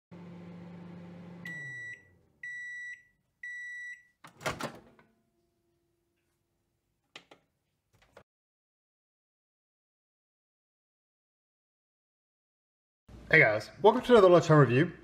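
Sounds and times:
microwave oven hum: 0.1 - 6.0
microwave beeps: 1.2 - 4.2.

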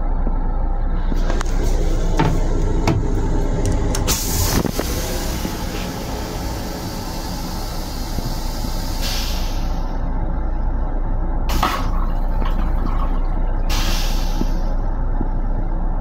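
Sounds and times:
electric train rumble: 0.0 - 16.0.

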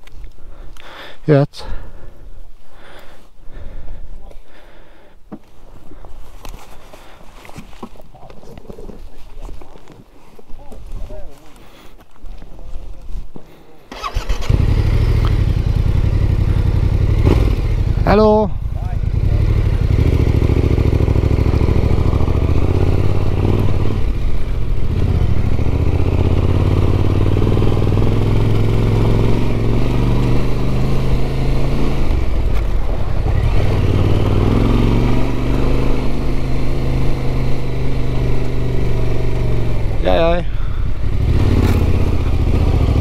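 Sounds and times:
motorcycle engine revving: 13.9 - 43.0.

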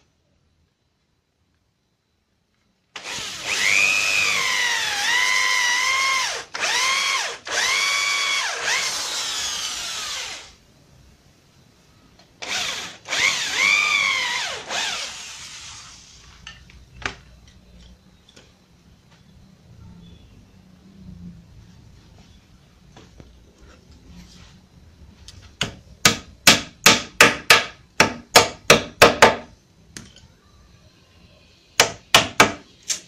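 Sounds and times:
electric drill whining: 3.0 - 10.6, 12.4 - 16.2.

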